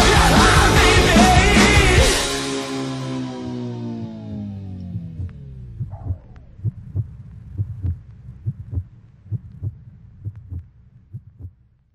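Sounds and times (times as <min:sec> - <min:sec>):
heartbeat double thump: 0:05.0 - 0:11.6.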